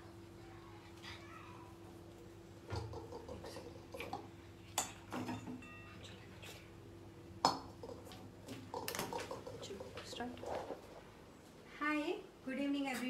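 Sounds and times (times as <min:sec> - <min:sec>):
utensils and dishes clinking: 0:02.8 - 0:06.2.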